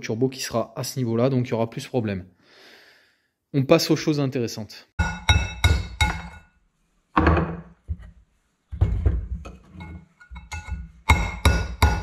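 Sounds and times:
hammer striking metal punch: 5.0s - 6.4s, 10.4s - 12.0s.

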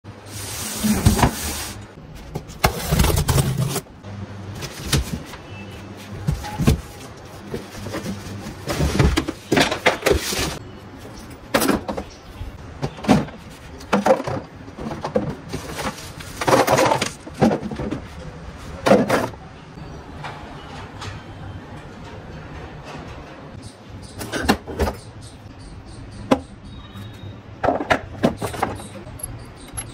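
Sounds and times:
cardboard box scraping and rustling: 2.5s - 3.9s.

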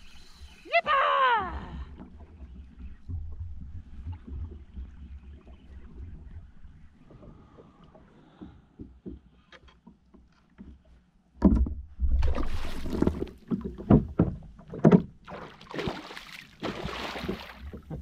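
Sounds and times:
fish splashing in water: 15.3s - 17.8s.

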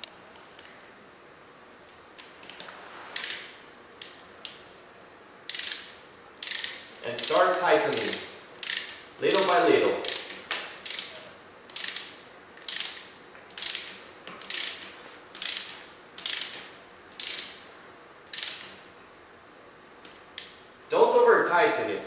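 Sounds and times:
ratchet wrench pawl clicking: 3.2s - 4.6s, 5.5s - 17.6s, 18.3s - 18.8s.

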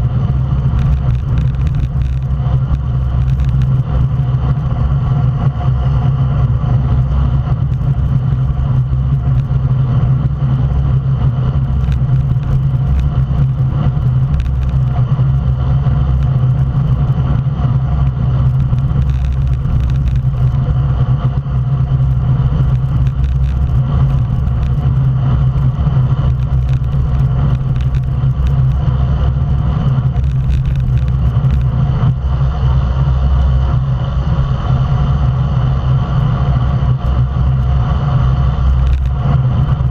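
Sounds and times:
tyre noise on asphalt: 0.0s - 39.9s
wind rush on microphone: 0.0s - 39.9s.

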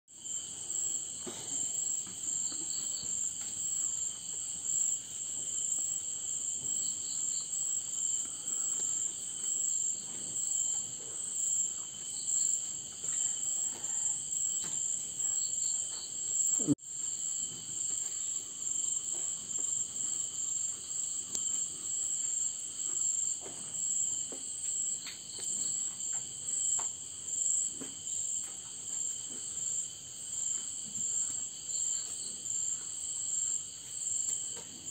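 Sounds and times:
high-pitched insect trill: 0.2s - 34.7s
lower insect trill: 0.2s - 34.9s.

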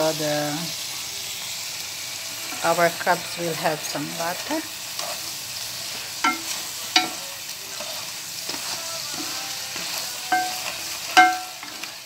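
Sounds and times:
crabs sizzling in a pan: 0.0s - 12.0s
wooden spatula stirring: 5.9s - 12.0s.

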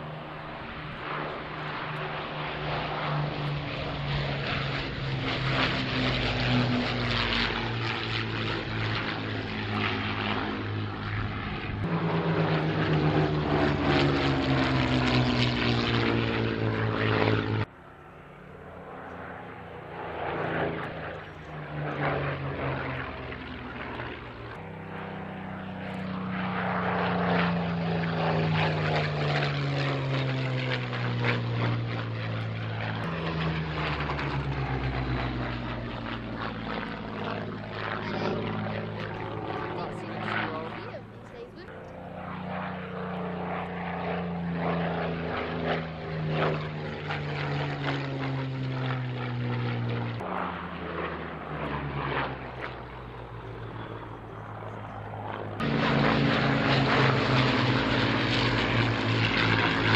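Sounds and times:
bomber piston engines fly-past: 0.0s - 59.9s
fighter planes passing: 0.0s - 59.9s.

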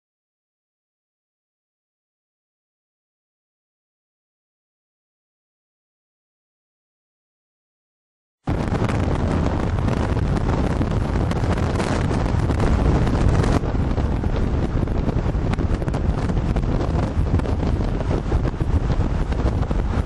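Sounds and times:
wind buffeting microphone: 8.5s - 20.0s.

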